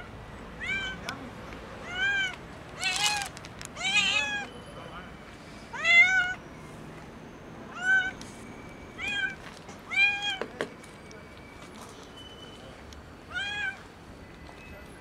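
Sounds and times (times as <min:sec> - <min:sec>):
cat meowing loudly: 0:00.6 - 0:01.0, 0:01.8 - 0:04.5, 0:05.7 - 0:06.4, 0:09.0 - 0:10.4, 0:13.3 - 0:13.8.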